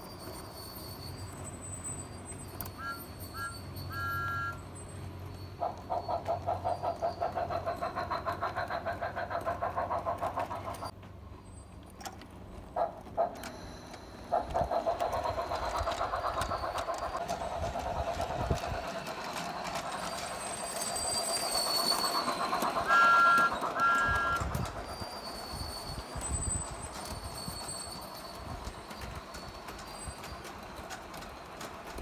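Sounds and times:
model train wheels clattering: 2.3 - 32.0
two-note train whistle toots: 2.7 - 4.6, 22.7 - 24.7.

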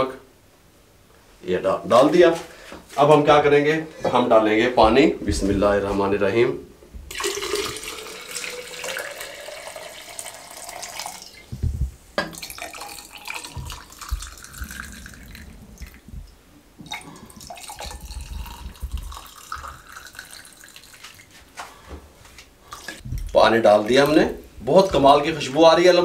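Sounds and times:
water pouring and splashing: 7.1 - 11.6, 12.2 - 21.6
low knocks: 11.5 - 12.4, 13.5 - 16.9.

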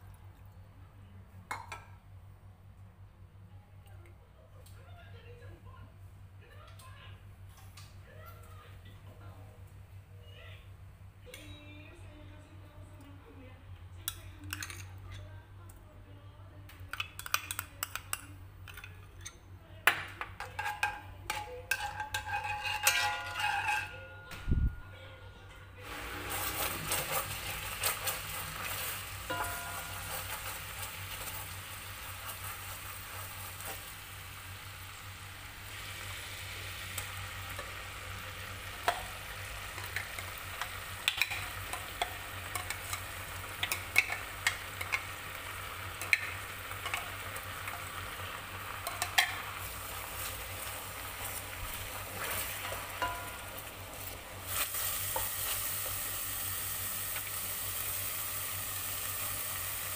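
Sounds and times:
paste sizzling in a pot: 21.7 - 23.8, 25.8 - 59.9.

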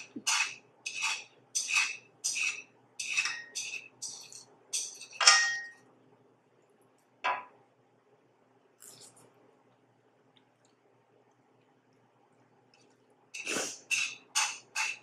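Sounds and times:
metal chopsticks scraping a pan: 0.0 - 5.5, 13.4 - 15.0.

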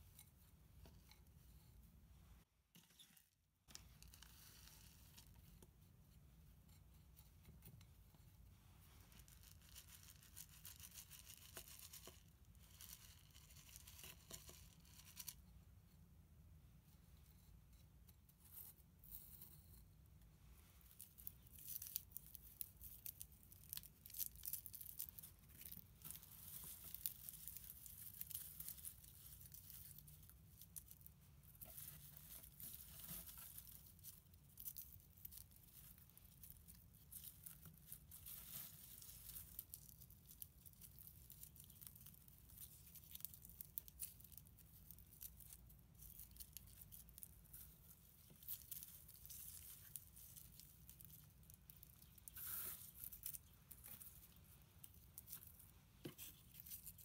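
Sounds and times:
dry crackling of bulb roots: 20.8 - 57.0.

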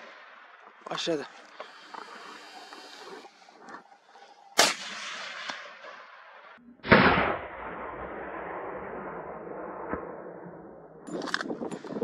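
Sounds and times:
rolling echo: 0.0 - 11.9
gunshots: 4.6 - 11.6.

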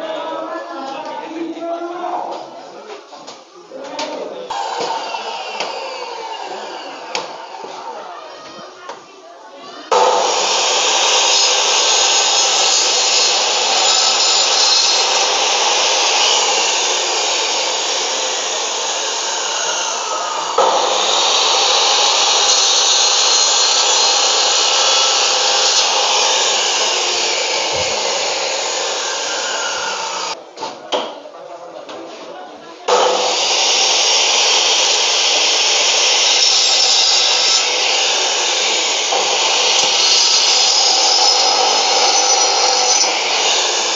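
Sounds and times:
saw cutting bone: 4.5 - 7.4, 9.9 - 30.4, 32.9 - 43.9.

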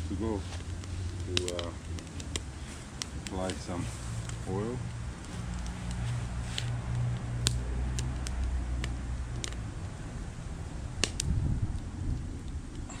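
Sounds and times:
fire popping: 0.0 - 13.0
wood fire crackling: 0.0 - 13.0
wind on microphone: 9.3 - 13.0.

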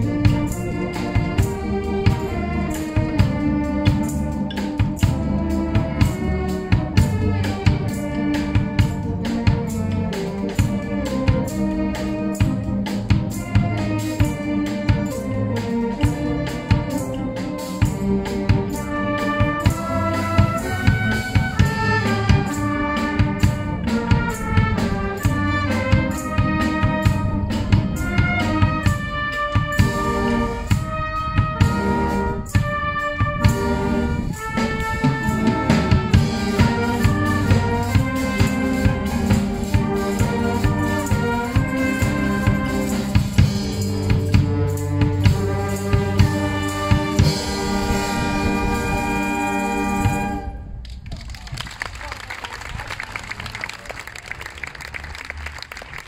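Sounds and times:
drum kit steady beat: 0.0 - 48.6
wind band playing: 0.0 - 56.0.

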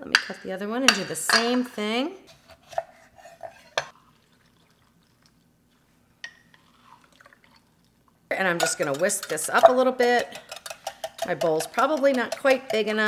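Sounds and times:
faint juice drips: 3.9 - 8.2.

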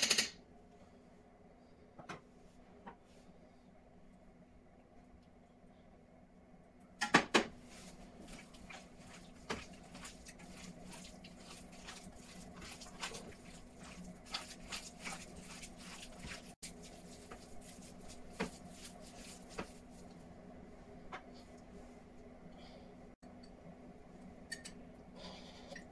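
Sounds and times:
faint steady hum: 0.0 - 25.9
soft squishing of meat: 7.6 - 20.3.

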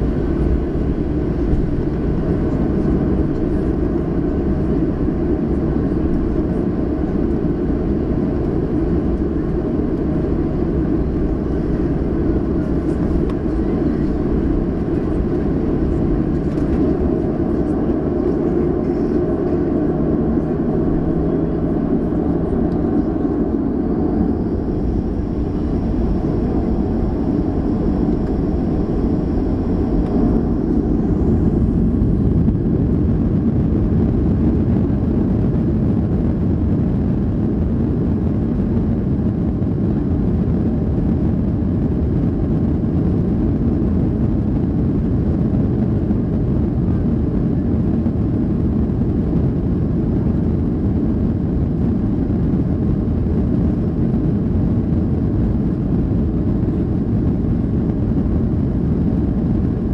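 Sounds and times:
jet engines high whine: 0.0 - 59.9
loud low engine rumble: 0.0 - 59.9.

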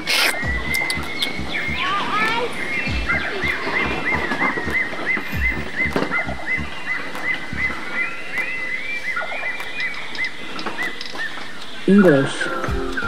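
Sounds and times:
animal chirping: 0.0 - 13.0
low thuds: 2.9 - 8.5.

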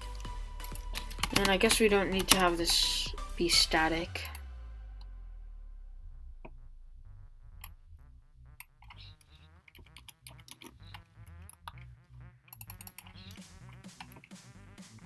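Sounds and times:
keyboard keys clicking: 0.0 - 2.8
faint background music: 0.0 - 15.0.

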